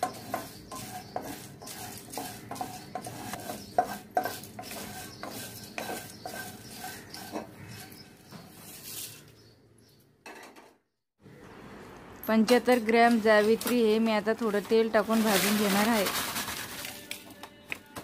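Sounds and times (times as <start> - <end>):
spatula scraping a pan: 0.0 - 9.2
cardamom pods rattling in wok: 12.6 - 16.9.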